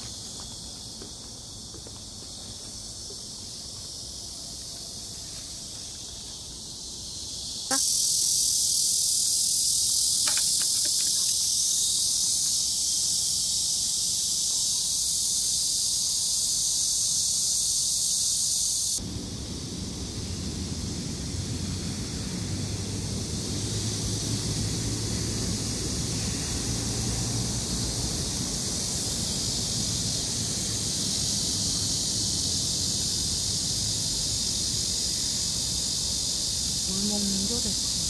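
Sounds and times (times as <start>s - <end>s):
insects shrilling: 3.5s - 19.1s, 28.0s - 38.0s
wind rumble on microphone: 19.0s - 34.4s.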